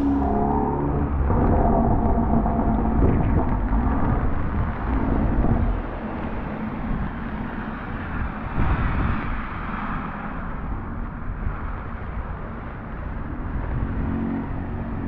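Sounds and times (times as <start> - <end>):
low rumble: 0.0 - 11.6
traffic on wet road: 3.2 - 15.0.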